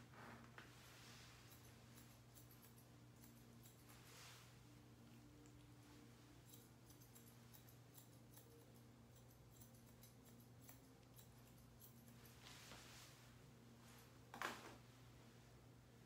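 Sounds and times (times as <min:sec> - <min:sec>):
low steady hum: 0:00.0 - 0:16.0
shears snipping hair: 0:00.9 - 0:13.2.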